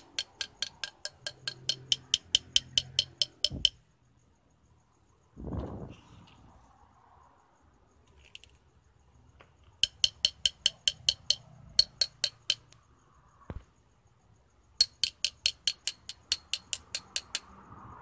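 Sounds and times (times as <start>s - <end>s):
metal rod tapping in brass tube: 0.0s - 3.8s, 9.8s - 12.8s, 14.8s - 17.5s.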